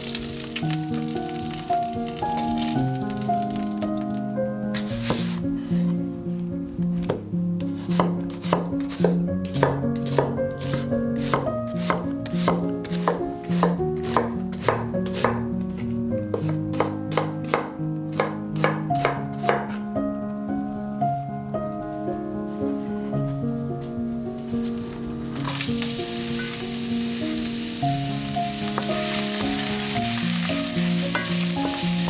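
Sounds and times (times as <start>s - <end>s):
soft background music: 0.0s - 32.0s
knife chopping on wooden board: 4.8s - 5.4s, 7.0s - 15.4s, 16.3s - 19.8s.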